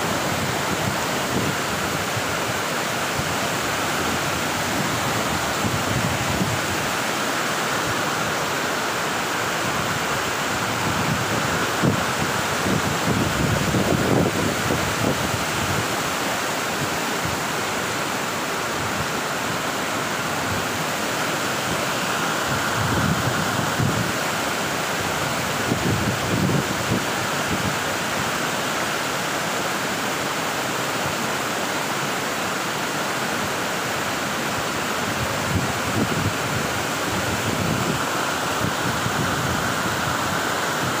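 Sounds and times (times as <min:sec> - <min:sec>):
waterfall rushing: 0:00.0 - 0:41.0.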